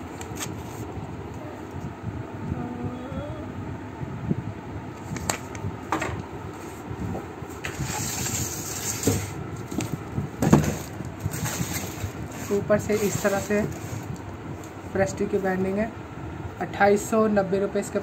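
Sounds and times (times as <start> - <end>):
cardboard and paper rustling: 7.6 - 14.2.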